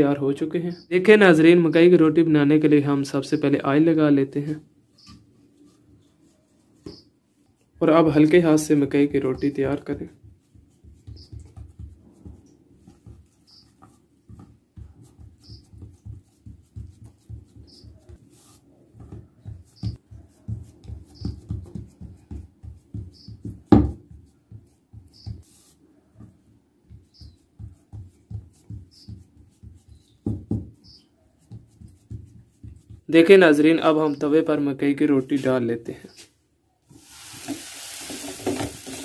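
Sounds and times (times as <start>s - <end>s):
hands patting dough: 5.1s - 33.3s, 36.9s - 39.0s.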